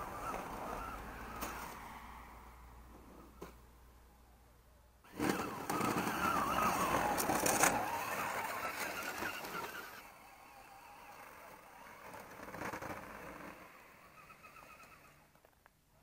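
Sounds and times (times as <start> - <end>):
toy truck electric motor: 0.2 - 1.8, 5.1 - 15.4
tyres churning snow: 5.1 - 15.3.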